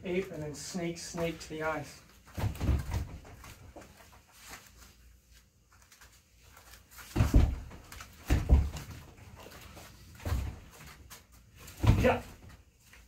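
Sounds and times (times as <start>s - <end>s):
punches thudding on striking dummy: 7.2s - 8.8s, 11.8s - 12.2s.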